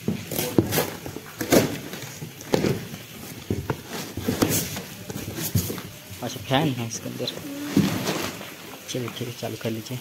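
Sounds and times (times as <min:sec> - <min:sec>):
cardboard rustling and scraping: 0:00.0 - 0:09.1
packing tape tearing: 0:00.3 - 0:02.9.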